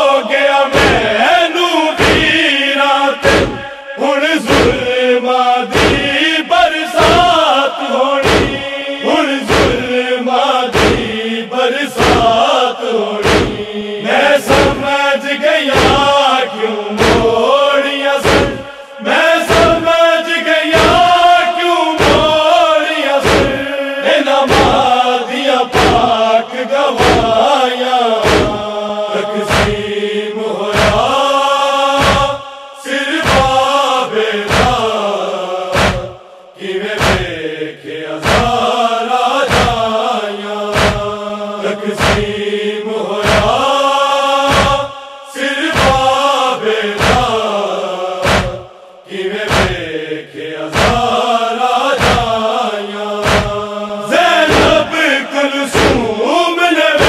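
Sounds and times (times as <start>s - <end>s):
men chanting in unison: 0.0s - 57.0s
chest-beating: 35.7s - 36.2s.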